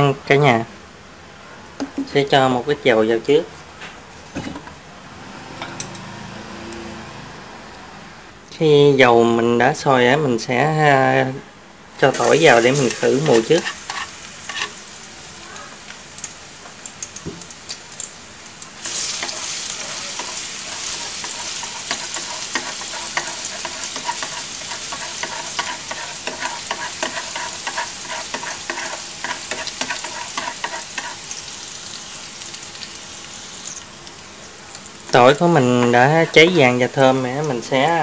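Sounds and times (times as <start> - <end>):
garlic sizzling in hot oil: 12.1 - 38.0.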